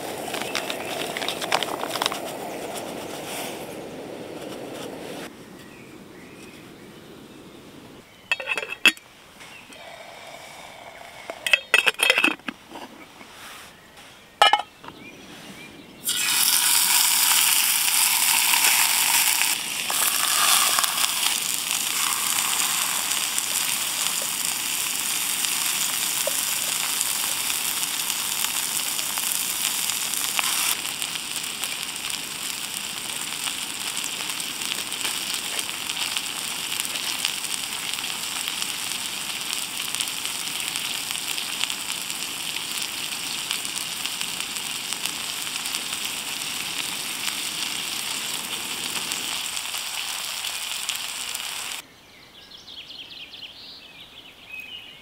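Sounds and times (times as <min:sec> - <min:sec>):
cookware clinking: 0:08.3 - 0:09.0, 0:11.4 - 0:12.5, 0:14.4 - 0:14.7
food sizzling in a pan: 0:16.0 - 0:51.8.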